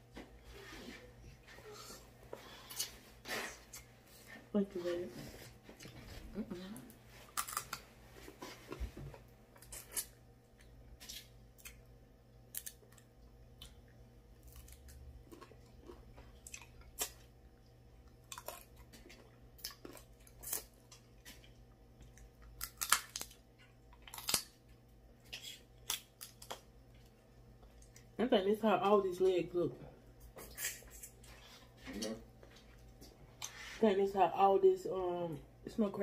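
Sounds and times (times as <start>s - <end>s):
chewing and eating mouth sounds: 12.5s - 28.2s
crab shells cracking: 22.5s - 24.6s, 25.3s - 26.7s.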